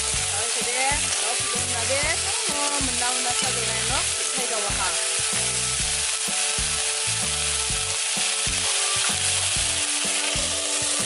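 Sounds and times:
vegetables sizzling in a wok: 0.0s - 11.0s.

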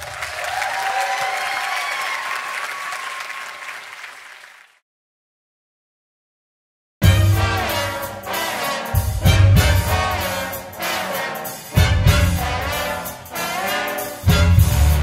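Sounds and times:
big band brass playing: 7.0s - 15.0s.

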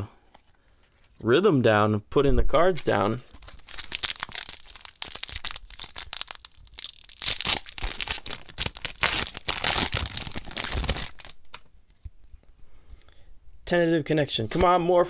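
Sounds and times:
foil wrapper crinkling and tearing: 3.3s - 11.7s.

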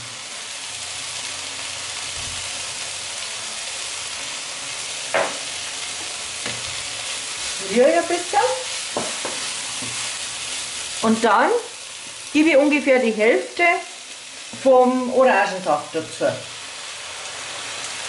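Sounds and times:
vegetables sizzling in frying pan: 0.0s - 18.0s
short knock: 5.2s - 5.4s
wooden spatula stirring vegetables: 5.4s - 12.3s, 14.0s - 15.0s.

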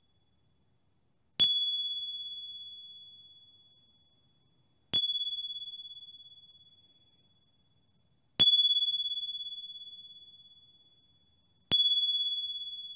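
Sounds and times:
small high-pitched bell ringing: 1.4s - 12.9s.

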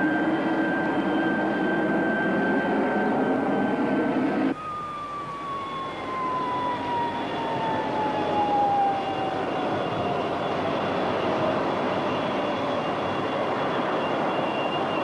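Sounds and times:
jet engine whine falling: 0.0s - 15.0s.

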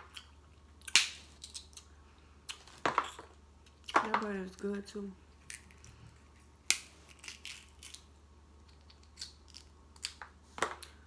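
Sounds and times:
crab shell cracking: 0.2s - 1.9s, 6.7s - 8.1s.

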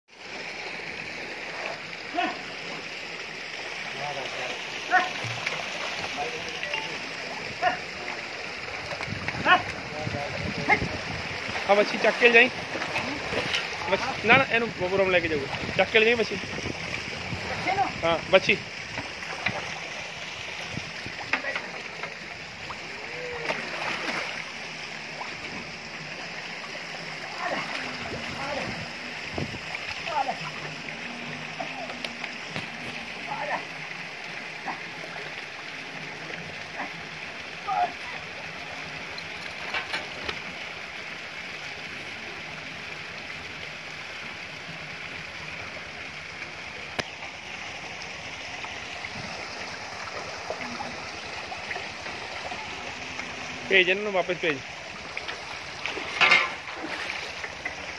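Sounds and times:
steady rush of water: 0.1s - 57.9s
water sloshing and splashing: 0.1s - 57.9s
sharp splash: 23.3s - 24.5s, 55.8s - 57.5s
water pouring into a tank: 47.5s - 57.9s.

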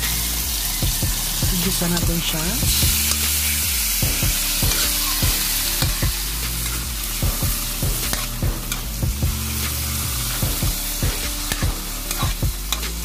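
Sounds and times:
meat sizzling in oil: 0.0s - 13.0s
spatula scraping wok: 0.0s - 13.0s.

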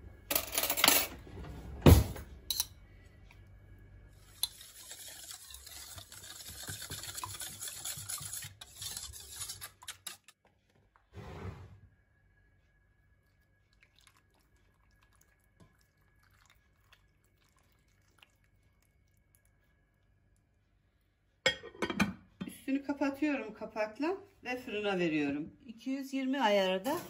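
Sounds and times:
whisk scraping metal bowl: 4.2s - 10.3s.

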